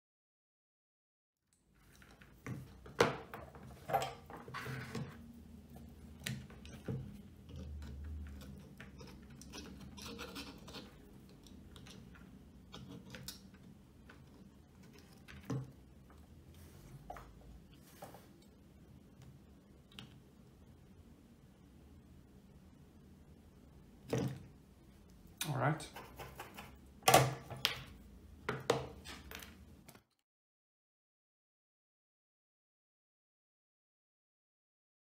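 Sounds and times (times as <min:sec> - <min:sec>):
hand tools clicking and tapping: 0:06.1 - 0:15.8.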